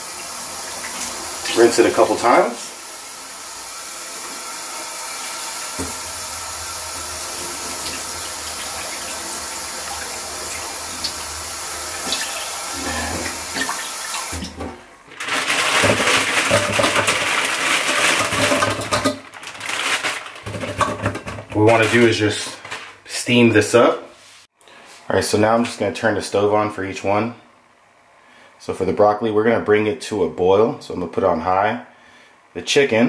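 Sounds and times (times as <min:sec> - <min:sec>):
tap running into saucepan: 0:05.8 - 0:06.1
plastic bag crinkling: 0:15.1 - 0:20.9, 0:21.7 - 0:23.0.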